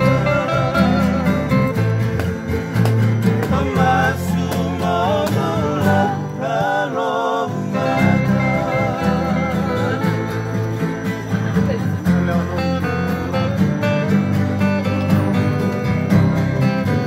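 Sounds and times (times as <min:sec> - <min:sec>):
men singing together: 0:00.0 - 0:02.0, 0:03.0 - 0:11.2
acoustic guitars and ukulele strummed: 0:00.0 - 0:17.0
plucked bass guitar: 0:00.0 - 0:17.0.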